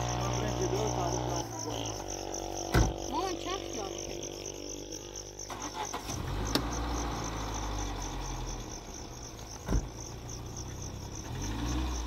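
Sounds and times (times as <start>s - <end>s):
crickets chirping: 0.0s - 12.0s
loud thump: 2.7s - 3.1s, 9.6s - 10.1s.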